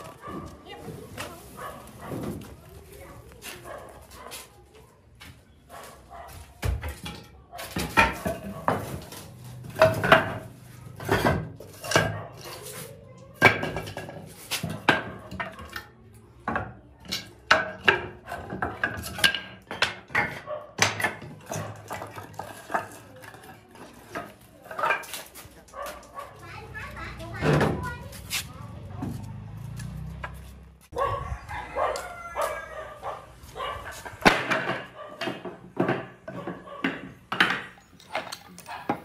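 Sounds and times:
wooden boards knocking together: 34.1 - 37.8.

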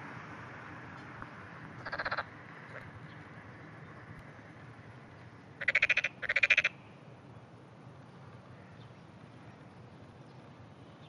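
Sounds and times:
frogs croaking: 1.8 - 3.0, 5.6 - 7.0.

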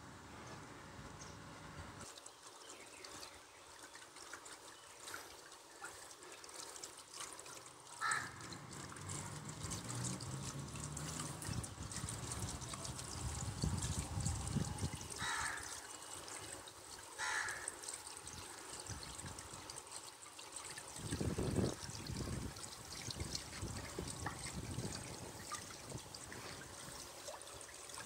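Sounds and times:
water trickling and splashing: 2.0 - 28.0.

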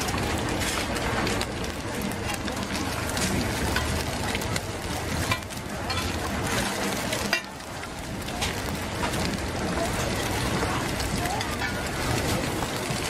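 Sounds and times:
egg sizzling in oil: 0.0 - 13.0
metal spatula clinking on wok: 3.7 - 4.0, 5.2 - 6.2.

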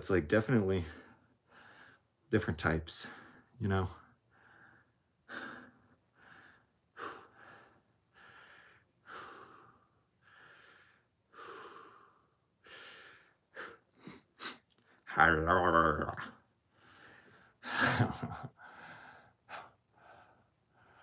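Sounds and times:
man breathing hard: 0.8 - 2.1, 4.3 - 15.0, 16.7 - 21.0.

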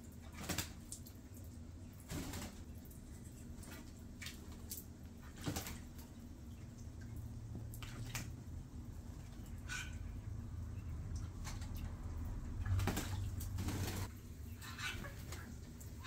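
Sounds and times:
bird splashing in water: 11.1 - 14.1.

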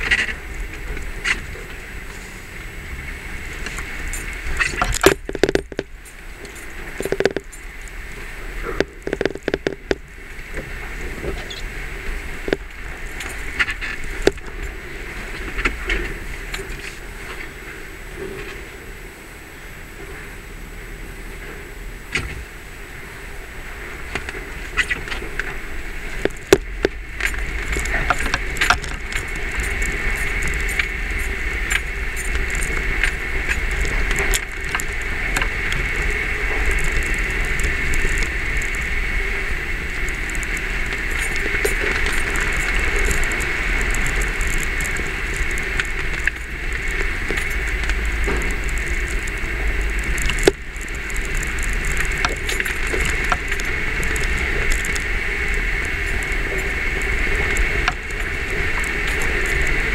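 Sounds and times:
vehicle engine and drivetrain rumble: 0.0 - 59.9
camera chattering against windshield: 3.7 - 8.0, 8.6 - 10.1.

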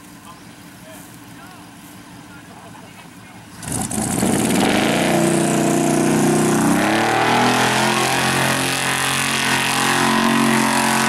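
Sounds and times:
truck engine at high revs: 3.2 - 11.0.

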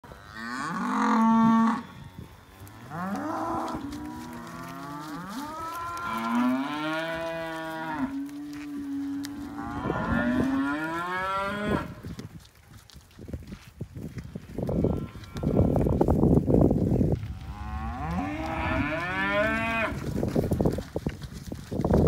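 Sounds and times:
cattle mooing: 0.2 - 11.9, 17.4 - 20.0.

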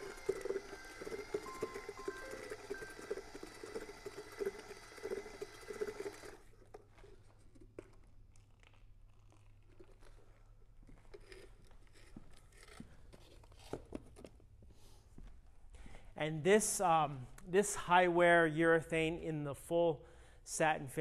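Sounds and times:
drill stirring paint with paddle: 0.0 - 7.7.

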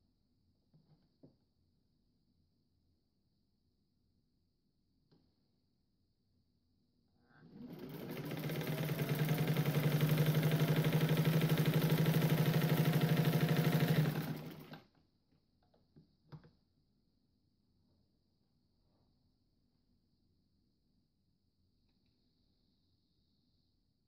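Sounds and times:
sewing machine stitching: 7.4 - 14.9.

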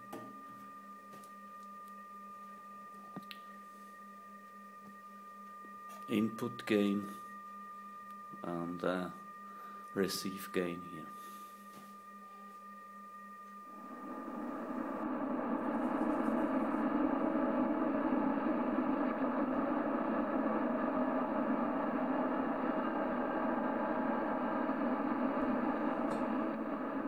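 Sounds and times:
radio static hiss: 8.4 - 9.2, 13.7 - 27.0.

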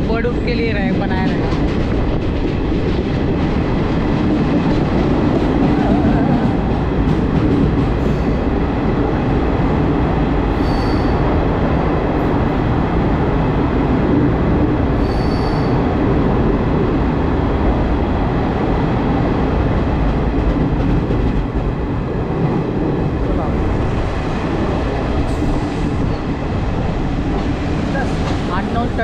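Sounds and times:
train rumbling in tunnel: 0.0 - 29.0
high squeals of train wheels: 10.5 - 11.4, 14.9 - 16.0.

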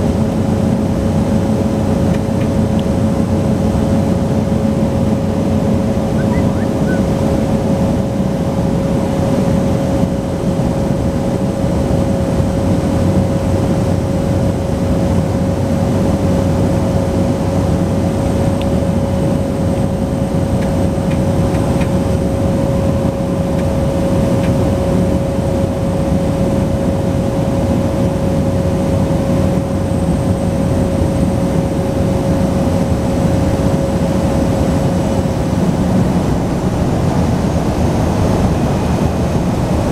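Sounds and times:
turboprop engine drone: 0.0 - 39.9
steady whining tone: 0.7 - 11.4, 16.0 - 39.9.

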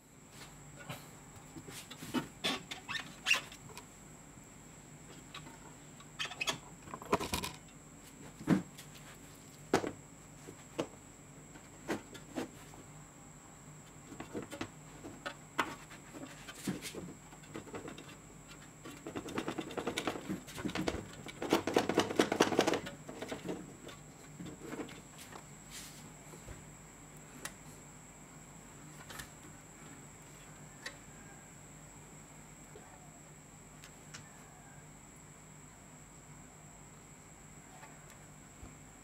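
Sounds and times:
cable rustling and knocking: 18.8 - 25.4.

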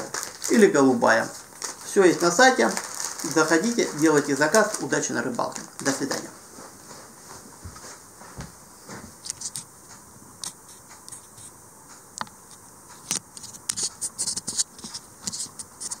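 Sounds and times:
small scratches and clicks: 9.2 - 9.7, 10.4 - 11.5, 12.5 - 16.0.

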